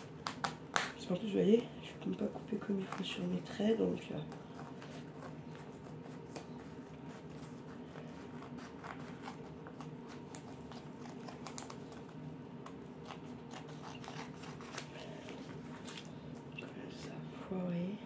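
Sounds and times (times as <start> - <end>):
steady low hum: 0.0 - 18.0
wallpaper rustling and crinkling: 1.5 - 17.2
scissors cutting paper: 2.1 - 16.1.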